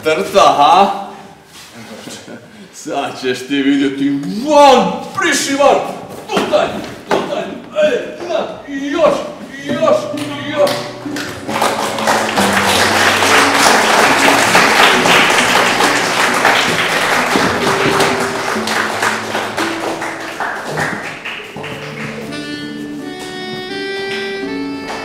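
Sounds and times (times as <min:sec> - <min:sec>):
instrumental music: 0:09.0 - 0:25.0.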